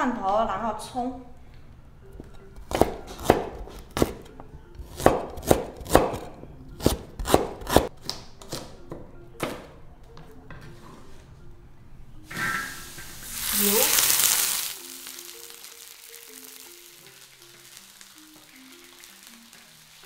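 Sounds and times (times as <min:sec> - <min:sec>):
cleaver chopping on wooden board: 0:02.6 - 0:04.2, 0:04.9 - 0:08.6.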